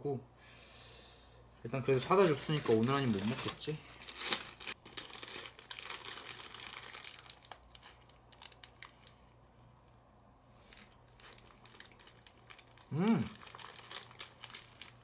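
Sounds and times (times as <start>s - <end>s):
paper wrapper crinkling: 1.9s - 9.3s, 10.6s - 15.0s.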